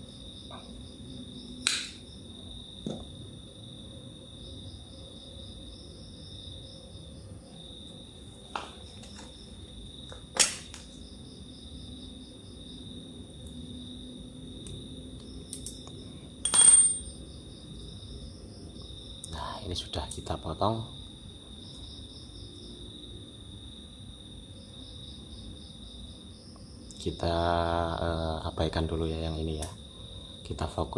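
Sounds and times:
crickets chirping: 0:00.0 - 0:30.9
sharp clicks of cutting wire: 0:01.6 - 0:02.0.

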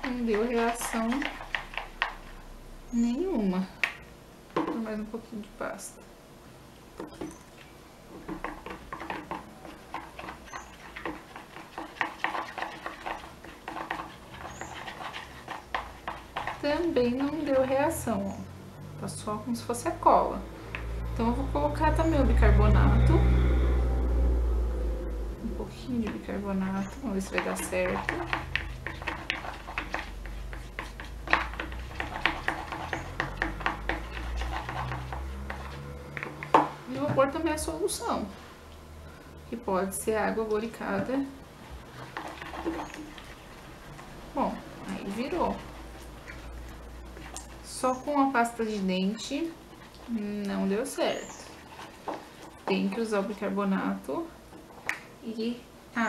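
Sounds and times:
stick stirring glue in plastic bowl: 0:00.0 - 0:02.4, 0:07.0 - 0:18.3, 0:25.5 - 0:37.8, 0:40.1 - 0:55.0.

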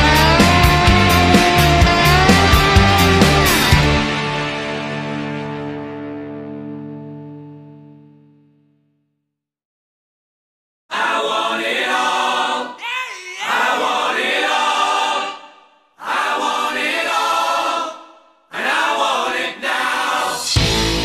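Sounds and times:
choir singing held chords: 0:00.0 - 0:04.8, 0:10.9 - 0:21.0.

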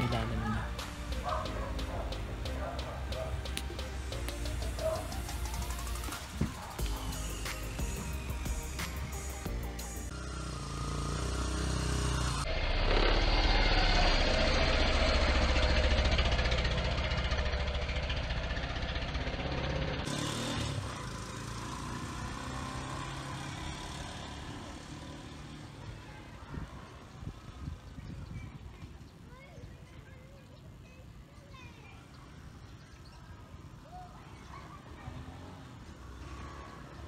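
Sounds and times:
motorcycle engine idling: 0:00.0 - 0:22.5.

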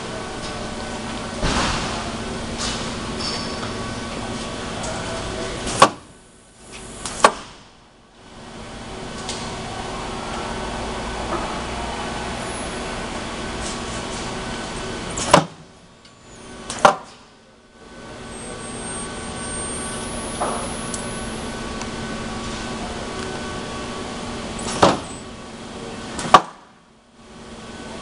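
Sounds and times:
loud sharp machine clunks: 0:01.2 - 0:04.3, 0:07.0 - 0:07.8
welding machine humming: 0:08.2 - 0:16.8, 0:17.8 - 0:24.8.

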